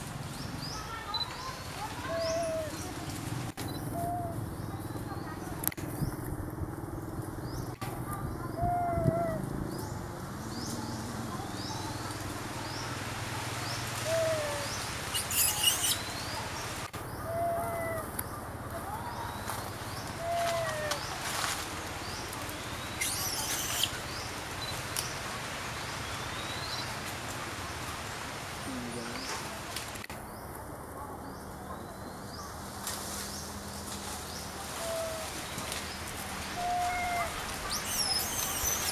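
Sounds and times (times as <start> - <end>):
birds chirping: 0.0 - 29.6, 30.2 - 38.9
outdoor background noise: 0.0 - 38.9
low whistled bird calls: 14.1 - 16.3, 36.6 - 38.9.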